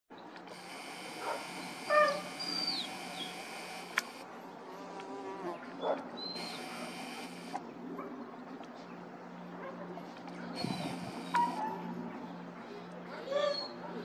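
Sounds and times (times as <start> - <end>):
distant airplane engine drone: 0.2 - 4.8, 5.6 - 14.0
camera zoom motor whirring: 0.4 - 4.3, 6.3 - 7.6, 10.6 - 11.7
short animal calls: 0.5 - 4.2, 6.4 - 7.6, 10.6 - 11.7.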